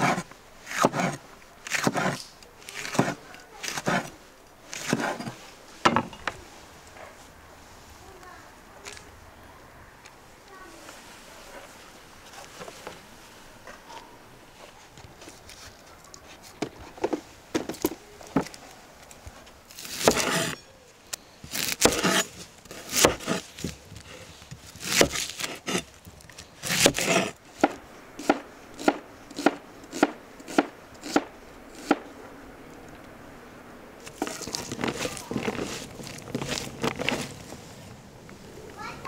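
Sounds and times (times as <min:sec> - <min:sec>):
knife slicing onion: 0:00.0 - 0:02.2, 0:02.8 - 0:04.1, 0:04.7 - 0:05.3, 0:19.8 - 0:20.6, 0:21.5 - 0:25.9, 0:26.6 - 0:32.0
knife strikes on wooden board: 0:20.0 - 0:20.6, 0:21.8 - 0:22.3.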